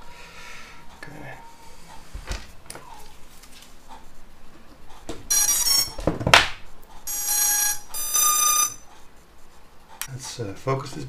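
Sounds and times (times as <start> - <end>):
electronic startup beeps: 7.1 - 8.8.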